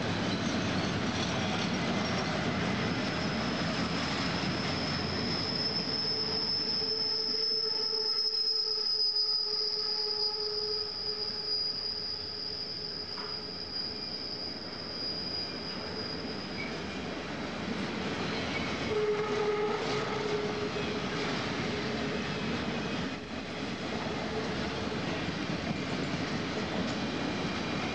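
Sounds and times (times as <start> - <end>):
freight train wheels rumbling on rail: 0.0 - 27.9
high wheel squeal: 0.2 - 17.3, 18.2 - 23.2
lower squealing tone: 0.4 - 17.1, 18.2 - 21.9.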